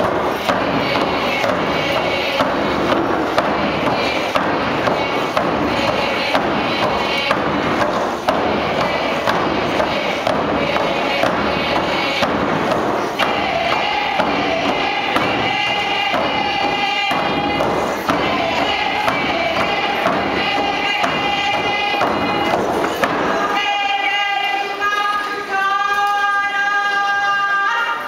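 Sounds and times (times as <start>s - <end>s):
drum beating steadily: 0.0s - 23.8s
group singing: 0.0s - 28.0s.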